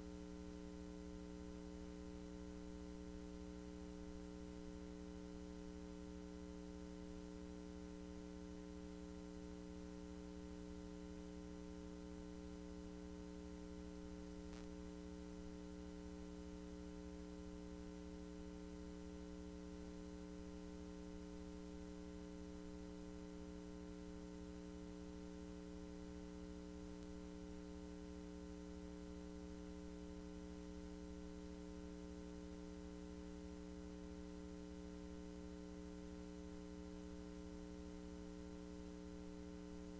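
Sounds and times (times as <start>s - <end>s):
low electrical hum: 0.0s - 39.9s
faint tick: 27.0s - 27.2s.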